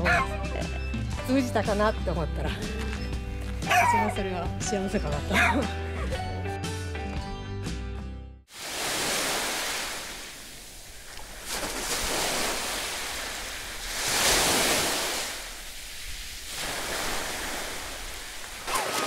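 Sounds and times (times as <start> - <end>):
sea surf washing on shore: 8.5 - 19.0.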